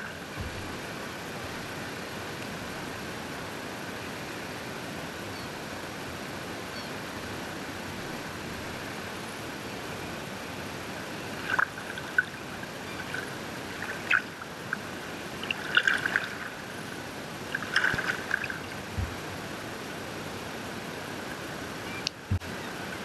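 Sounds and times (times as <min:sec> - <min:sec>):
hiss of wind and water: 0:00.0 - 0:23.0
paddle splashes and drips: 0:11.2 - 0:19.2.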